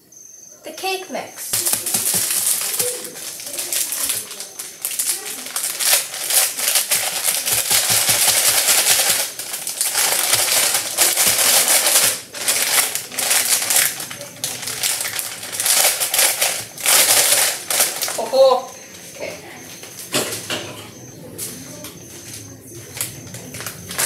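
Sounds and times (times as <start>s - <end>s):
foil packet crinkling: 1.5s - 18.7s, 22.9s - 24.0s.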